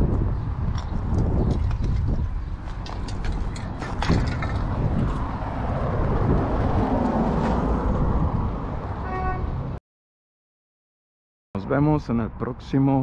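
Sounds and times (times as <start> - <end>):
road traffic: 0.0 - 9.8, 11.6 - 13.0
vehicle passing by: 2.1 - 9.8.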